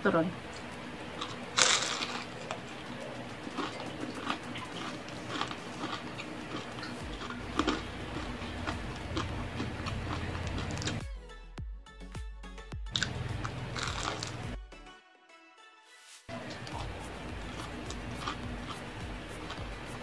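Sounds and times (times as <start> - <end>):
chewing crunches: 1.2 - 11.0, 13.0 - 14.4, 16.5 - 20.0.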